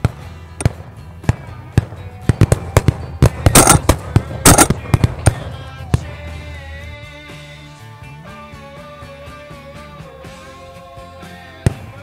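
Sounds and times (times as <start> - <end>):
shotgun fire: 0.0 - 6.1
background music: 0.0 - 12.0.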